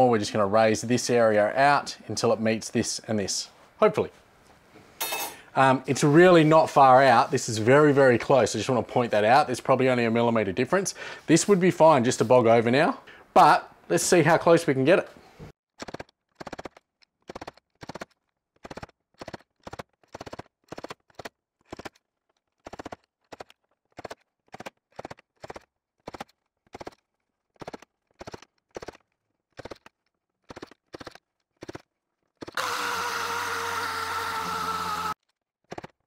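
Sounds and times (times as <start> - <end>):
orbital sander running: 32.6 - 35.2.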